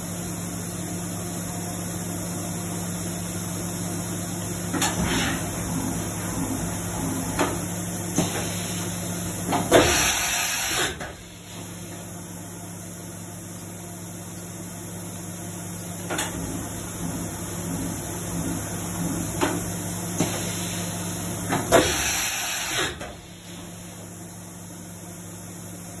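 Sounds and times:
machine hum: 0:01.3 - 0:09.8.

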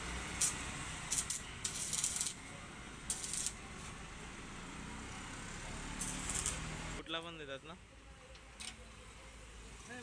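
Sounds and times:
welding arc sizzling: 0:00.0 - 0:04.7, 0:05.4 - 0:07.0.

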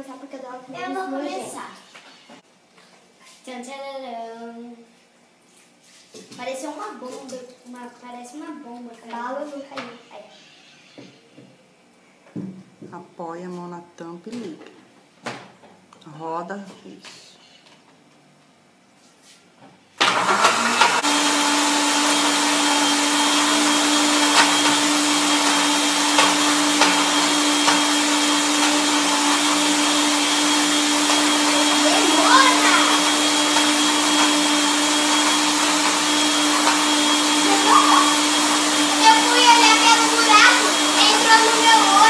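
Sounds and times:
electric blender running: 0:20.0 - 0:42.0.

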